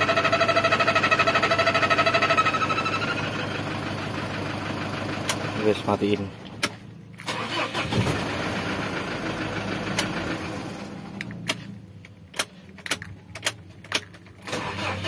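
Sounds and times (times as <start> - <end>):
diesel engine running rough: 0.0 - 6.3, 7.2 - 11.8.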